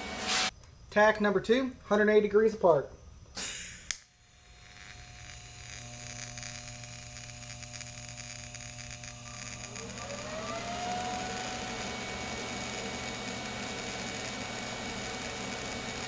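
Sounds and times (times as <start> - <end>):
welding arc buzzing and hissing: 0.0 - 0.5, 3.4 - 16.0
rising whine: 3.4 - 16.0.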